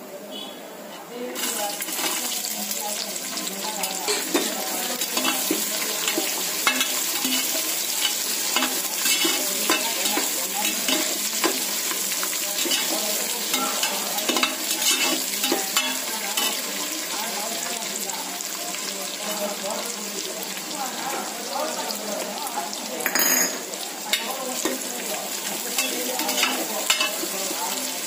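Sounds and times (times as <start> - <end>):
onions sizzling in hot oil: 1.2 - 28.0
steel ladle scraping and clinking pot: 4.0 - 11.6, 12.6 - 16.6, 25.8 - 27.3.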